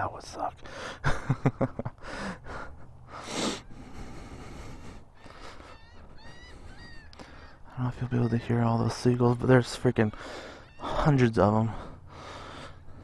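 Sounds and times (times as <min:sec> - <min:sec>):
seagulls calling: 0:00.7 - 0:13.0
person sniffing hard: 0:03.2 - 0:03.7.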